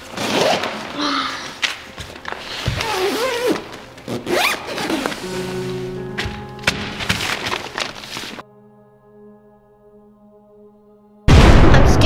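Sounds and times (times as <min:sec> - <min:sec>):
tent zipper being pulled: 0:00.0 - 0:01.0, 0:02.8 - 0:05.3.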